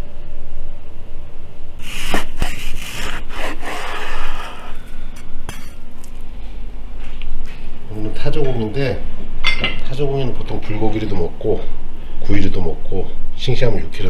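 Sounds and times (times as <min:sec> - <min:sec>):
knife slicing meat on board: 0:01.8 - 0:04.9.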